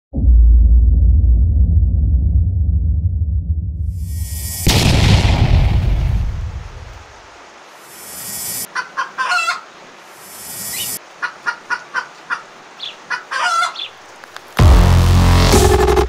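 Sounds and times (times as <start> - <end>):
chicken clucking: 8.7 - 9.7, 10.7 - 13.9.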